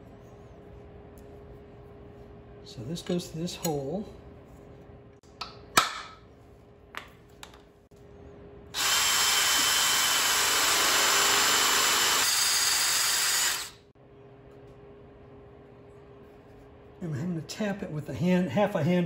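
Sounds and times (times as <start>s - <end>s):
cordless drill boring into metal: 8.8s - 13.8s.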